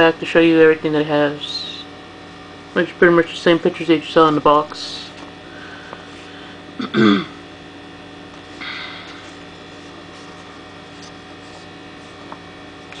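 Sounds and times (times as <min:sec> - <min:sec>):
electrical mains hum: 0:00.0 - 0:13.0
paper rustling: 0:09.1 - 0:13.0.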